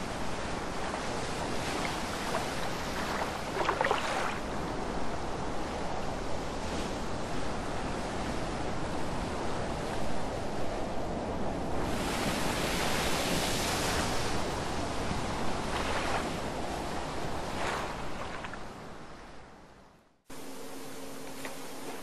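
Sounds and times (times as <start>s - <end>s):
waves on open water: 0.0s - 22.0s
wind: 0.0s - 22.0s.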